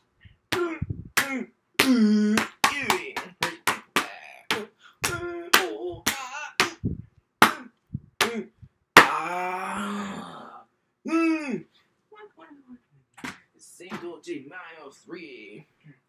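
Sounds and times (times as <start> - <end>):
man making vocal fighting sounds: 0.5 - 11.7
man yelling: 4.0 - 6.8.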